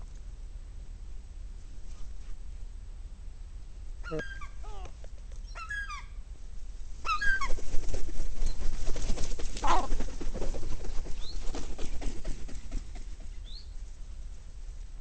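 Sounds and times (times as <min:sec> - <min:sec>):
gull call: 0:04.0 - 0:04.9
wings flapping and scuffling: 0:07.0 - 0:13.6.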